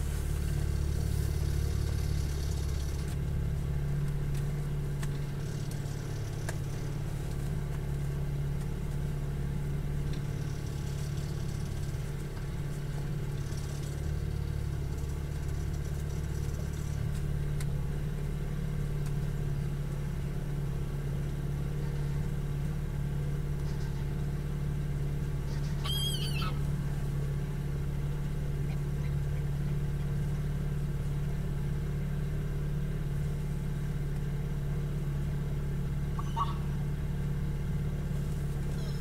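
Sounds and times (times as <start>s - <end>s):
boat engine low hum: 0.0s - 39.0s
faint bird chirp: 25.5s - 26.6s, 36.2s - 36.7s
bird call: 25.5s - 26.7s, 36.1s - 36.8s.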